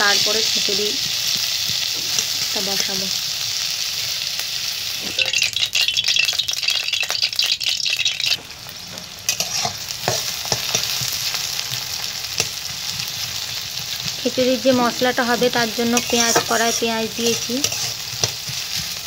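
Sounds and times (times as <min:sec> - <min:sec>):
food sizzling in oil: 0:00.0 - 0:19.0
spatula scraping metal pan: 0:09.3 - 0:11.1, 0:14.6 - 0:19.0.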